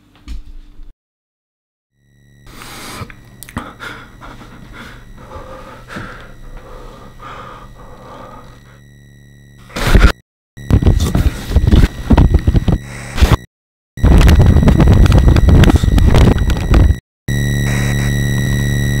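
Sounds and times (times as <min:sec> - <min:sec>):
hum of pure tones: 0:02.0 - 0:19.0
person breathing heavily: 0:02.5 - 0:08.8.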